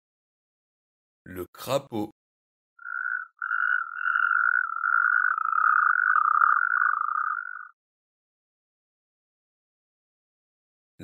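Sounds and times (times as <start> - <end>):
toad trilling: 2.8 - 7.8.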